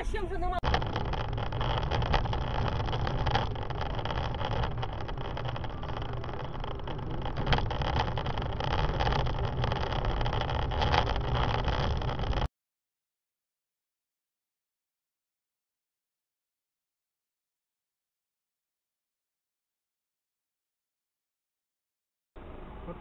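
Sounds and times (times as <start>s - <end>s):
car engine and road rumble: 0.0s - 12.5s.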